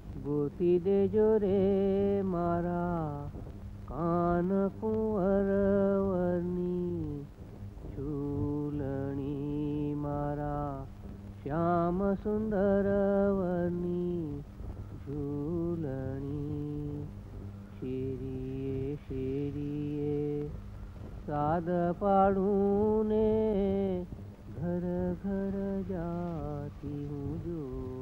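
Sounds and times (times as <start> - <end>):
low steady drone: 0.0 - 28.0
solo voice chanting: 21.3 - 28.0.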